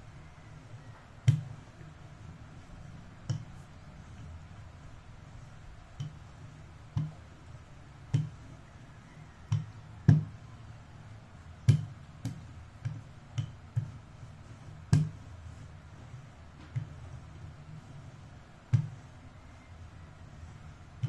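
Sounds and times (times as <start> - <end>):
rolling pin knocking: 9.3 - 10.4, 14.8 - 15.3.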